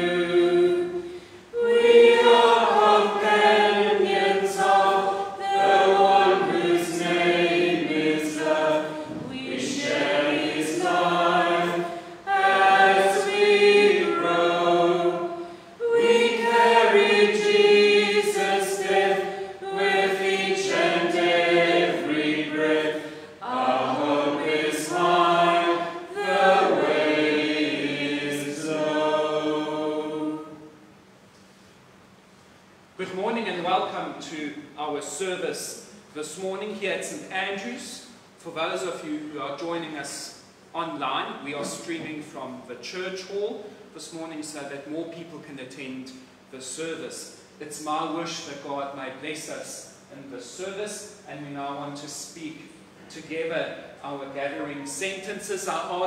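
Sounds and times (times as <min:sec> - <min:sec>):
congregation singing a hymn: 0:00.0 - 0:30.8, 0:41.4 - 0:42.2.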